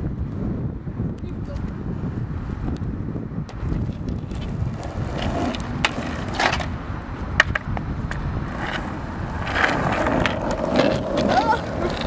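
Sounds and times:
skateboard wheels rumbling on asphalt: 0.0 - 12.0
skateboard clacking on ground: 3.5 - 12.0.

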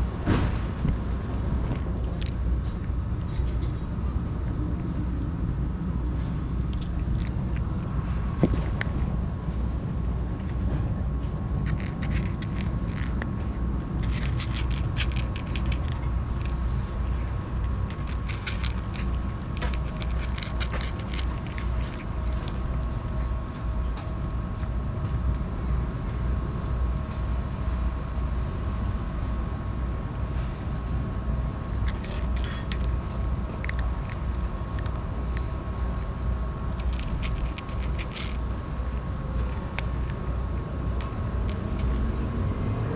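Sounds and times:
cat crunching dry kibble: 0.8 - 9.3, 10.1 - 23.7, 31.6 - 42.9.

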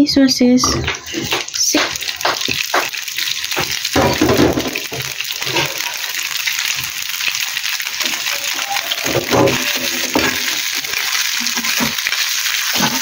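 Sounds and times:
sausages sizzling in a frying pan: 0.4 - 13.0
knocks in frying pan: 0.6 - 5.7, 9.0 - 10.6.

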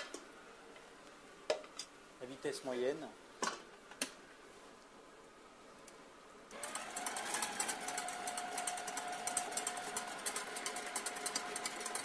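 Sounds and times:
stand mixer motor whine: 6.6 - 12.0.

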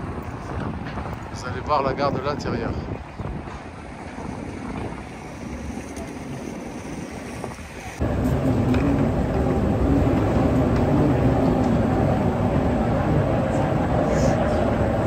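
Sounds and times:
moving walkway rumble: 0.0 - 15.0
street ambience: 0.0 - 15.0
wind on microphone: 0.0 - 15.0.

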